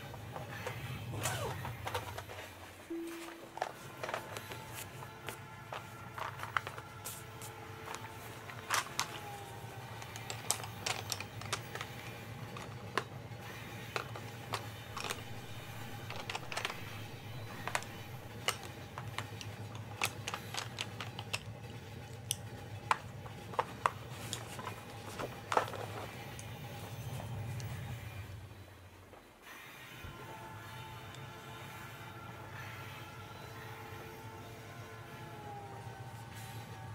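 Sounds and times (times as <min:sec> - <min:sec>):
pencils clicking against metal tin: 0:03.6 - 0:13.2, 0:13.8 - 0:26.6.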